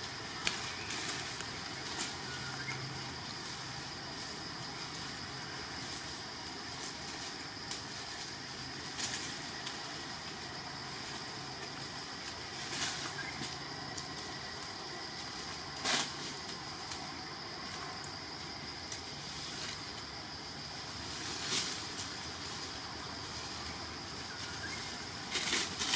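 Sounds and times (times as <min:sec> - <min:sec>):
steady background hiss: 0:00.0 - 0:25.9.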